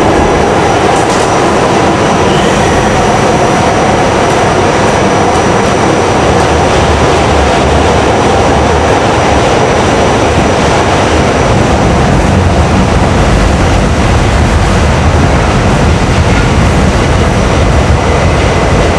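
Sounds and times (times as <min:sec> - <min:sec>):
subway car wheels rumbling on rails: 0:00.0 - 0:18.9.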